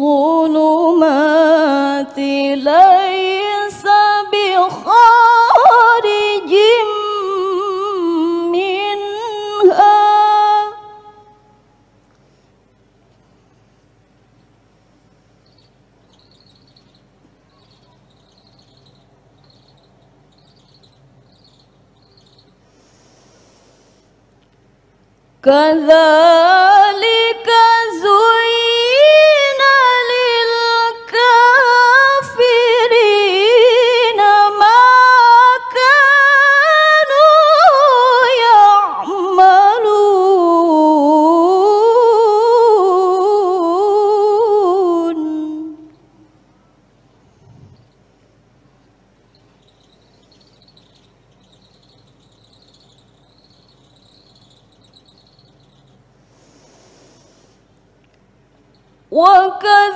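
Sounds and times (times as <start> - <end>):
woman reciting melodically: 0.0 - 11.7, 25.4 - 46.4, 59.1 - 59.9
soft hiss: 0.0 - 59.9
small animal chirping: 15.4 - 22.6, 47.4 - 48.1, 49.2 - 56.1.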